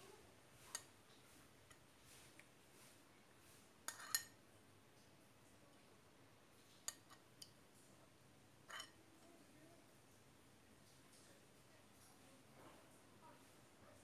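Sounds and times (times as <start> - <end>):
metal spoon clinking against glass: 3.9 - 4.3
spoon scraping: 3.9 - 4.4, 8.7 - 9.0.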